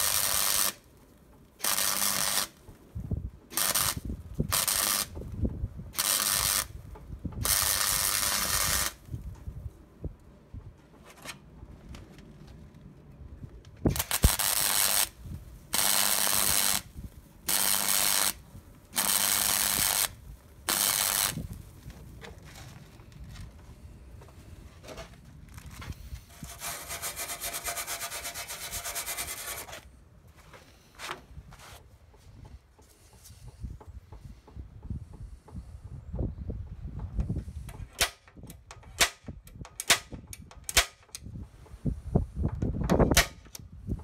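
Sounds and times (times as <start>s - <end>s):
welding arc bursts: 0.0s - 0.8s, 1.6s - 2.6s, 3.5s - 5.2s, 6.0s - 6.8s, 7.4s - 9.0s, 13.9s - 21.5s
rubbing noise: 25.7s - 29.9s.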